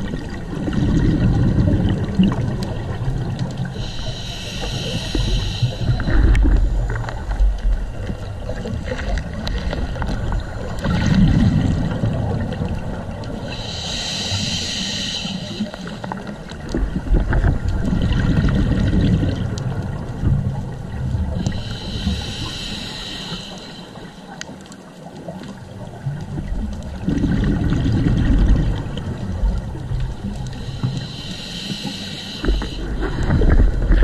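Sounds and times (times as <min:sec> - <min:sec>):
exhaled bubbles burbling: 0:00.0 - 0:03.9, 0:05.0 - 0:13.6, 0:16.0 - 0:21.7, 0:25.1 - 0:30.8
regulator inhalation hissing: 0:03.7 - 0:07.0, 0:13.5 - 0:16.2, 0:21.4 - 0:24.4, 0:30.6 - 0:33.2.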